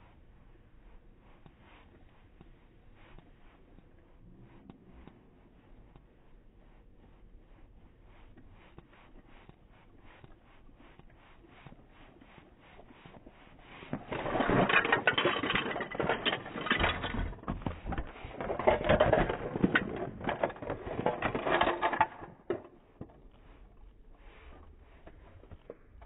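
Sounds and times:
plastic toy furniture rattling: 14.0s - 22.7s.

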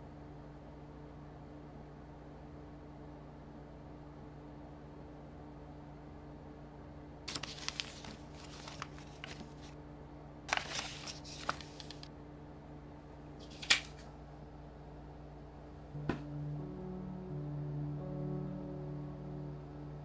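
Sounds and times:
steady low hum: 0.0s - 20.0s
papers and plastic cases rustling: 7.3s - 9.8s, 10.5s - 12.1s, 13.4s - 14.1s.

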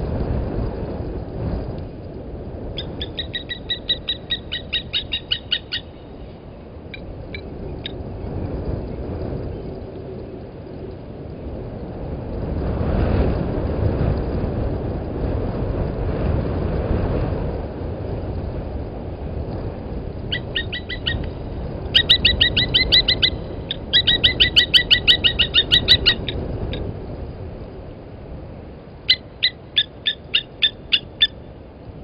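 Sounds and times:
lapwing tink calls: 2.8s - 6.3s, 20.3s - 26.8s, 29.1s - 31.5s.

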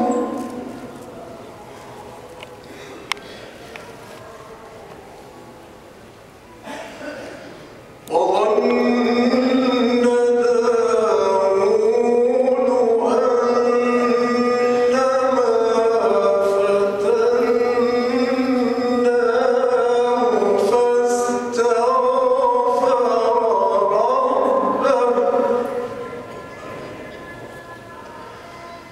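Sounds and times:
man reciting melodically: 0.0s - 1.1s, 8.0s - 28.9s.

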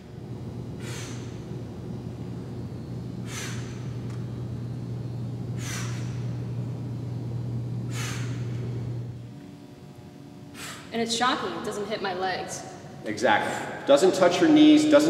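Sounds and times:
steady low hum: 0.0s - 15.0s
woman breathing out forcefully: 0.7s - 1.6s, 3.2s - 4.0s, 5.5s - 6.4s, 7.9s - 8.7s, 10.5s - 10.9s.

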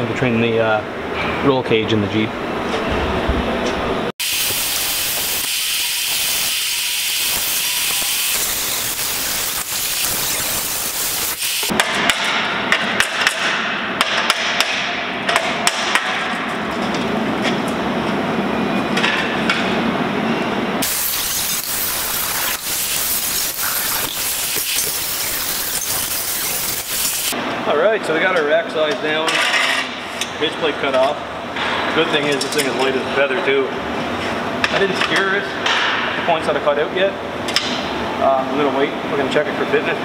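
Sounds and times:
angle grinder cutting aluminium: 4.2s - 11.7s, 20.8s - 27.4s.

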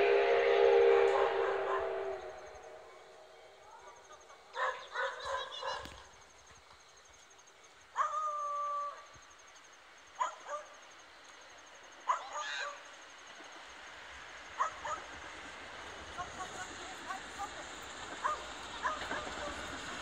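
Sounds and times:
dog barking: 1.1s - 2.0s, 4.5s - 5.9s, 8.0s - 8.3s, 10.2s - 10.8s, 12.1s - 12.4s, 14.6s - 15.1s, 18.2s - 19.3s.

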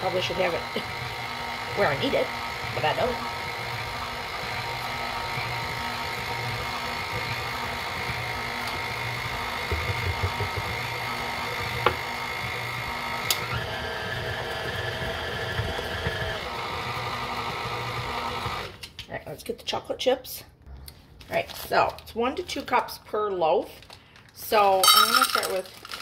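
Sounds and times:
stand mixer whining: 0.0s - 18.8s.

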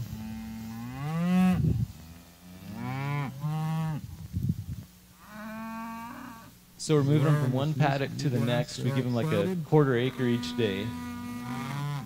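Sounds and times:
cattle mooing: 5.2s - 12.0s.

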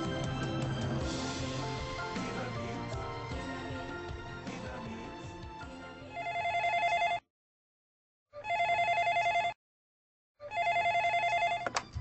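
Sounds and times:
background music: 0.0s - 7.0s
desk telephone ringing: 6.2s - 7.2s, 8.4s - 9.6s, 10.5s - 12.0s.

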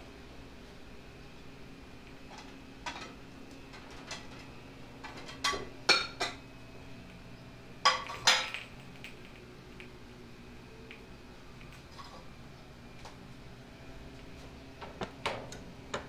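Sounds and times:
dishes clinking: 7.8s - 8.7s.

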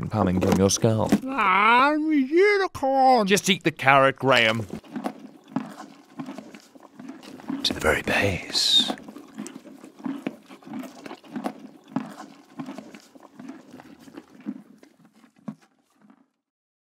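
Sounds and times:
horse chewing a carrot: 0.0s - 1.4s, 4.3s - 16.5s.

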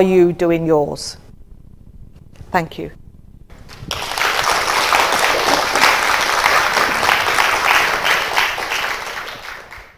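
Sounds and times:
audience applauding: 3.5s - 9.9s.

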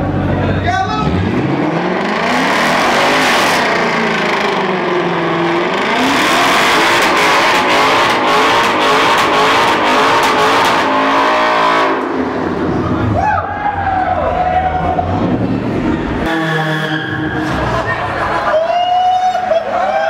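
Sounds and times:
car engine revving high: 1.0s - 13.2s.

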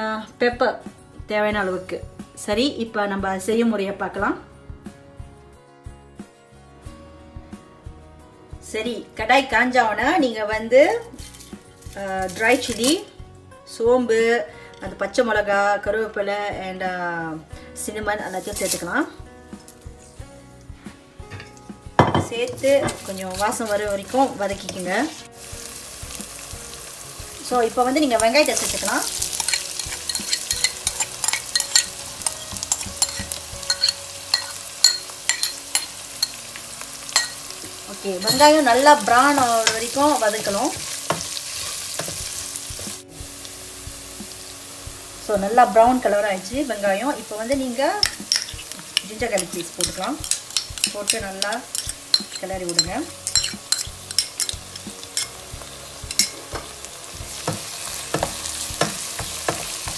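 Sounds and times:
hot oil sizzling and popping: 11.0s - 13.1s, 18.3s - 19.0s, 21.5s - 59.9s
metal spoon tapping and scraping: 21.3s - 23.6s, 28.2s - 36.4s, 37.1s - 43.0s, 47.5s - 56.7s, 57.3s - 59.9s.

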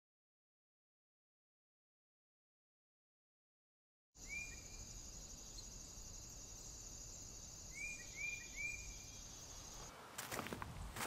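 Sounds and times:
bird chirps: 4.2s - 9.9s
high insect trill: 4.2s - 10.4s.

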